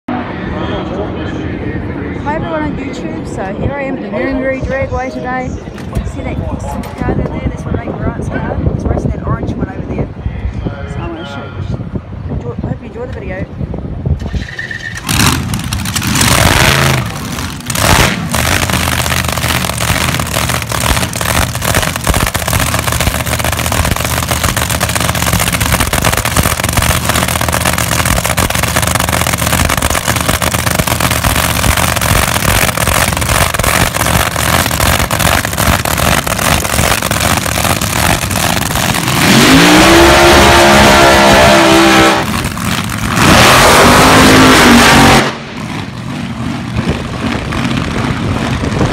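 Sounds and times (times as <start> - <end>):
drag racing engines running: 0.1 - 10.6, 11.4 - 48.9
dragster revving loudly: 14.2 - 48.9.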